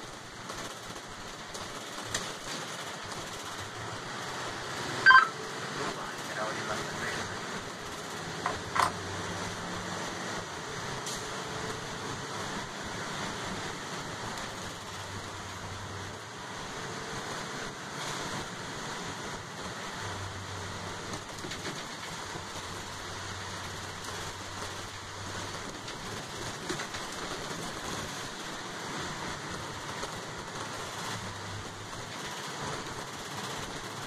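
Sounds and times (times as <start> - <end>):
bus engine humming: 0.0 - 34.0
tyre noise on wet road: 0.0 - 34.0.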